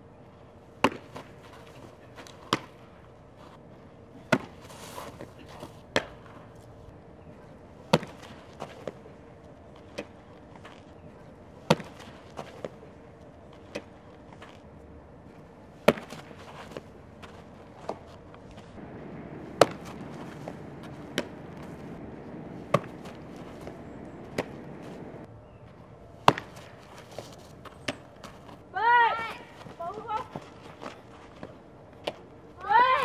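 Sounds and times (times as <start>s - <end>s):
softballs popping into gloves: 17.8s - 25.3s, 26.2s - 28.6s.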